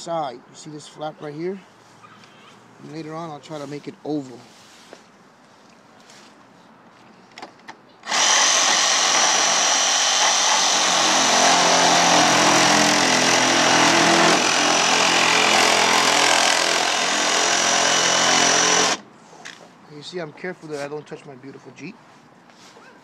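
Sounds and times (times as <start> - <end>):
power tool cutting plastic: 8.0 - 19.0.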